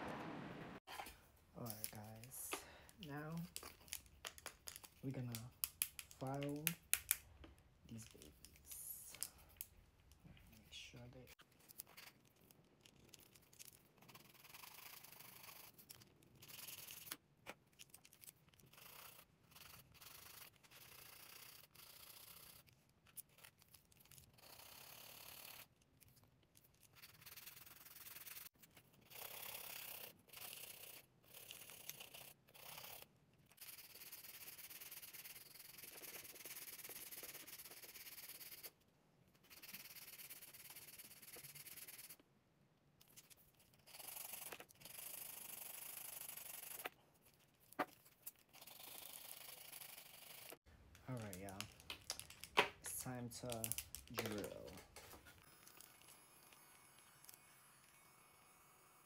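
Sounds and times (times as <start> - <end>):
nail file scraping nails: 3.0 - 7.3, 11.4 - 38.8, 39.4 - 42.2, 43.0 - 50.6.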